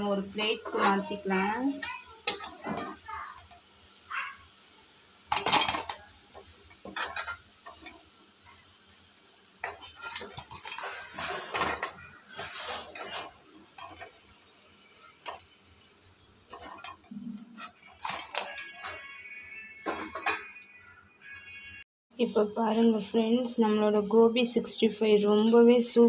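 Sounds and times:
frying oil sizzling: 0:00.0 - 0:20.9, 0:22.3 - 0:26.0
skimmer scraping metal pan: 0:00.3 - 0:03.0, 0:06.8 - 0:08.0, 0:09.6 - 0:14.2, 0:16.4 - 0:19.2.

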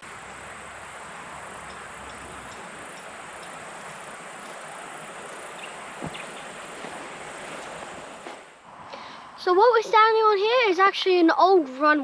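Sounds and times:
insects calling: 0:00.0 - 0:09.2.

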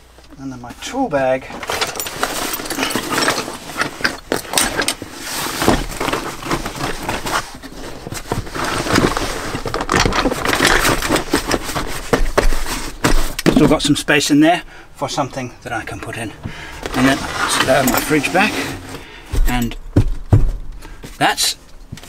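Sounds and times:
fabric rustling and scraping: 0:01.5 - 0:13.8, 0:16.8 - 0:22.0.

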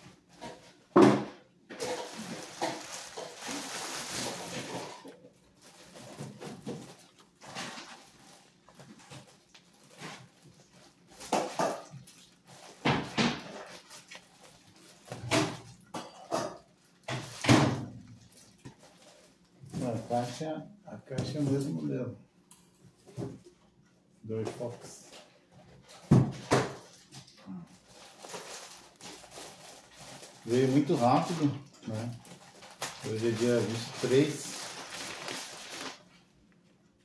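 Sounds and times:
plastic bag rustling: 0:01.7 - 0:15.8, 0:27.7 - 0:36.4.

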